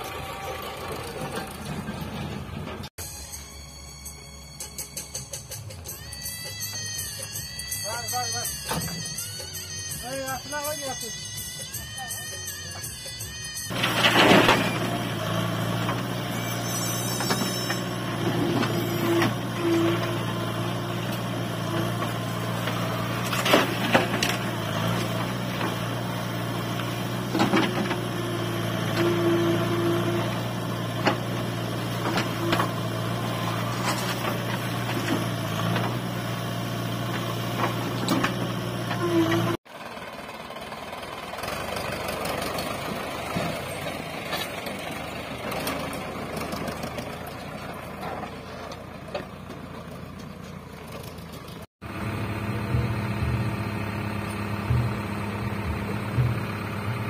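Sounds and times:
tractor engine running: 0.0s - 3.3s, 6.5s - 57.0s
diesel engine under load: 0.0s - 57.0s
soil and rock dumping: 13.7s - 39.6s.

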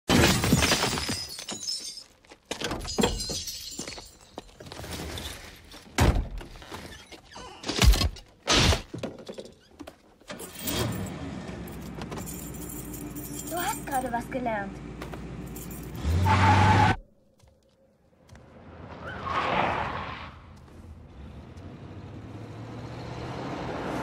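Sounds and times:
car window glass shattering: 0.1s - 2.0s.

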